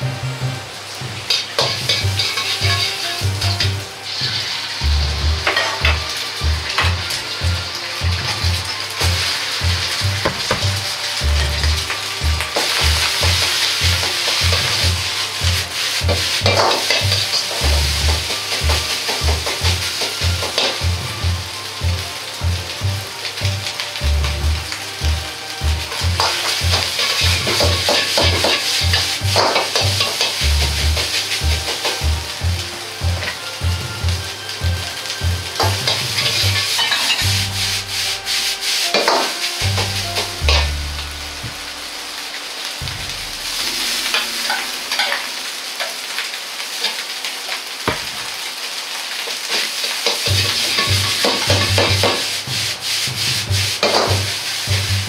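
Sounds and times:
background music with bass line: 0.0s - 45.0s, 50.3s - 55.0s
gas burner roaring: 0.0s - 55.0s
rice sizzling in a wok: 0.0s - 55.0s
ladle scraping and knocking on wok: 1.1s - 4.6s, 5.4s - 7.4s, 8.0s - 21.0s, 25.8s - 32.4s, 35.5s - 40.8s, 50.0s - 54.4s.

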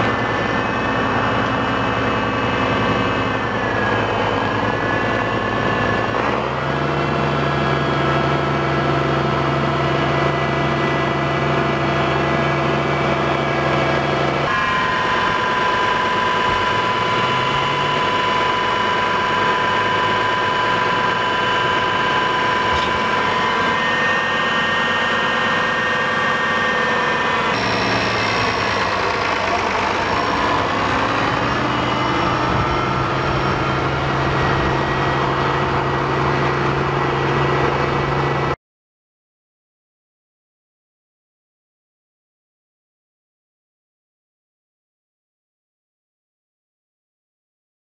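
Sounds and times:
tractor diesel engine running: 0.0s - 38.6s.

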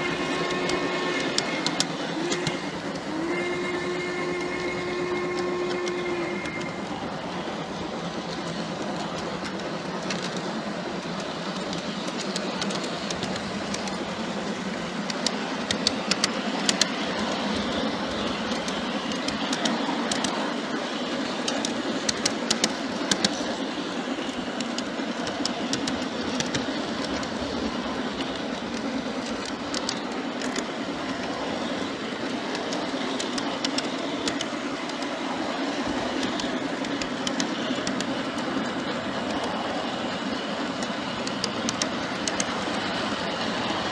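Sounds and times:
locomotive whistle tone: 0.0s - 7.6s
model train rumbling on rails: 0.0s - 43.9s
wheels clicking over rail joints: 0.0s - 43.9s.

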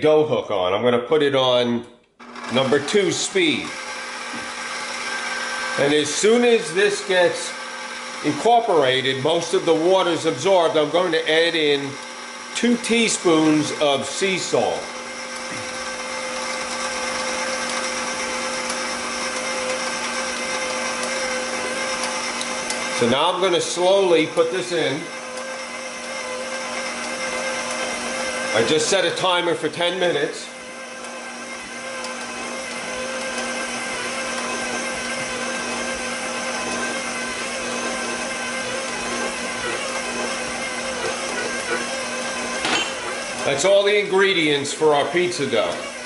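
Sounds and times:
stand mixer motor humming: 2.2s - 46.0s.

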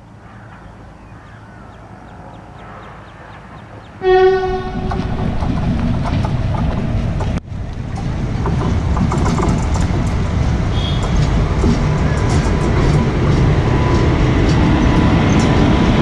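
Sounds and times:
quiet outdoor background: 0.0s - 16.0s
train rumble: 0.0s - 16.0s
train horn blast: 4.0s - 5.1s, 10.6s - 12.2s.

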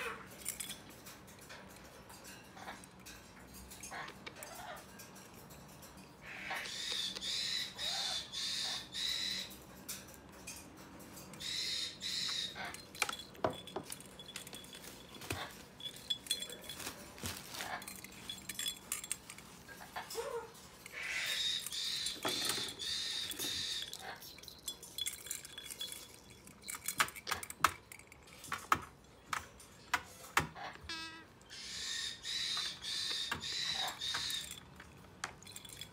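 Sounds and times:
metal bracelets clinking: 0.0s - 7.3s, 9.5s - 30.7s, 33.0s - 35.9s
parrot chicks begging calls: 6.2s - 9.6s, 11.4s - 13.0s, 19.8s - 24.4s, 30.6s - 34.6s.

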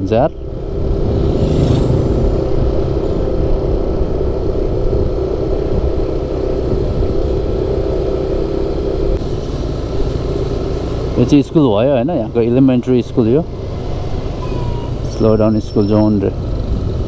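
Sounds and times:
wind buffeting microphone: 0.4s - 7.8s
scooter engine cruising: 0.4s - 15.2s.

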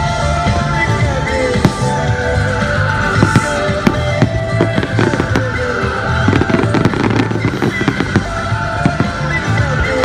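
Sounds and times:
loud music: 0.0s - 10.0s
fireworks popping and crackling: 2.6s - 10.0s.

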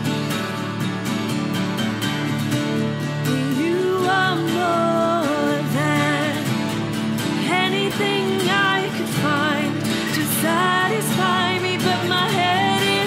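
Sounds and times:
guitar: 0.0s - 13.0s
woman singing: 3.1s - 13.0s.

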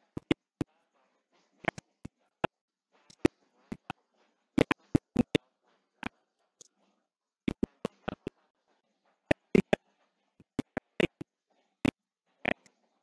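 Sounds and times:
sharp clicks and taps: 0.0s - 0.7s, 1.6s - 4.0s, 4.6s - 5.4s, 7.5s - 8.4s, 9.3s - 9.8s, 10.4s - 12.8s.

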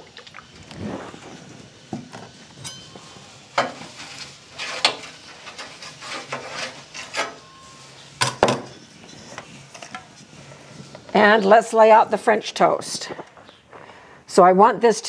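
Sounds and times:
light sizzle: 0.0s - 14.2s
metal spatula scraping griddle: 2.3s - 10.8s.

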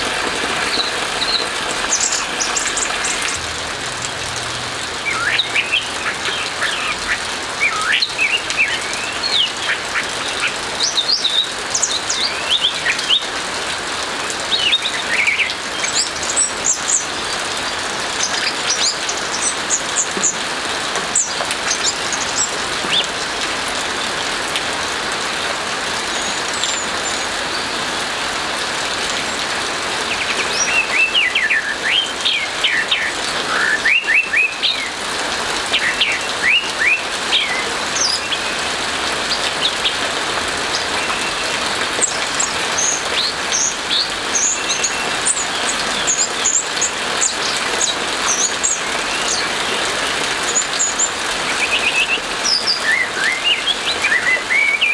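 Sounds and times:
rain hiss: 0.0s - 54.9s.

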